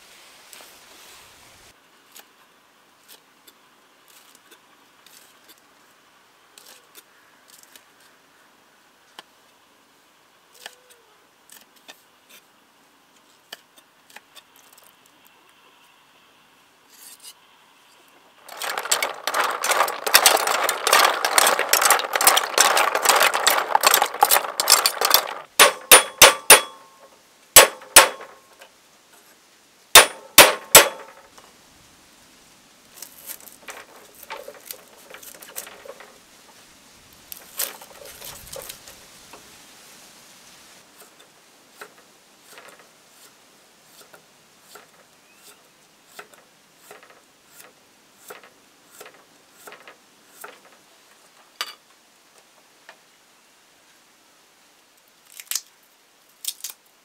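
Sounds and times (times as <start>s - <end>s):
snail shells clattering in water: 18.4s - 26.0s, 33.0s - 36.2s
sharp ringing knocks: 18.5s - 27.0s, 27.6s - 28.4s, 30.0s - 31.2s.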